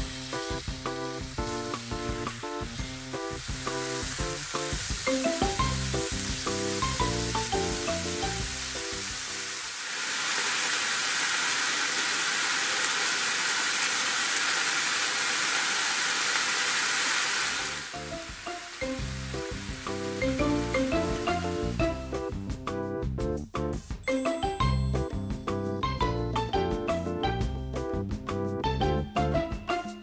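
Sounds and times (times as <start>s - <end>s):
background music: 0.0s - 9.5s, 17.9s - 30.0s
chicken sizzling in frying pan: 0.0s - 22.5s.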